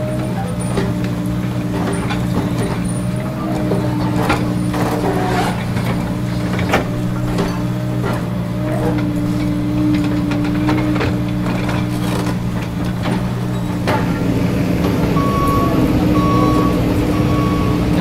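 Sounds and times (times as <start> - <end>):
excavator bucket knocks and clanks: 0.0 - 15.3
excavator diesel engine running: 0.0 - 18.0
electronic warning beep: 15.2 - 18.0.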